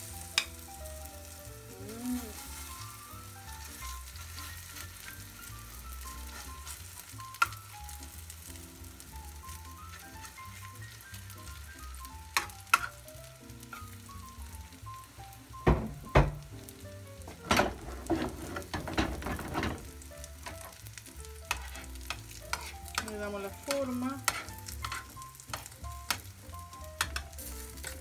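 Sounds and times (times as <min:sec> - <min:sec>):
burger frying in a pan: 0:00.0 - 0:28.0
utensils scraping a pan: 0:02.1 - 0:05.4, 0:06.1 - 0:07.6, 0:12.4 - 0:13.0, 0:17.5 - 0:20.8, 0:21.4 - 0:26.3, 0:27.0 - 0:28.0
utensils knocking against a pan: 0:12.4 - 0:13.0, 0:15.6 - 0:16.5, 0:17.3 - 0:20.8, 0:21.5 - 0:26.2, 0:27.0 - 0:28.0.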